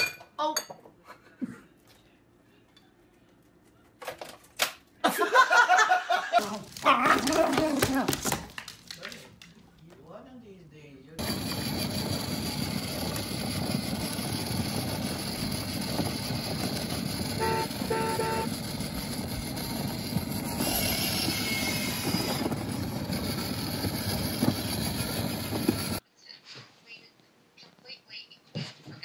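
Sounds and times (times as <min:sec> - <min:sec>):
toy car wheels and motor rolling: 0:11.2 - 0:26.0
toy car horn beeps: 0:17.1 - 0:18.8.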